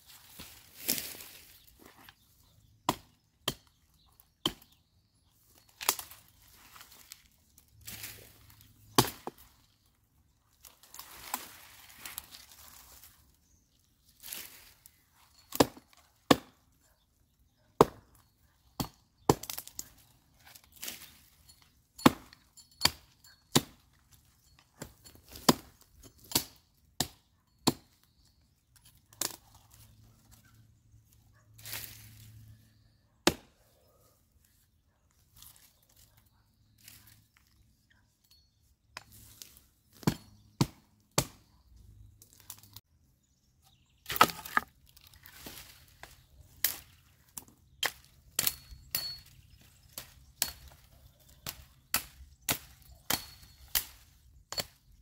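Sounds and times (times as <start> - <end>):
dry wood cracking and knocking: 44.0 - 49.2.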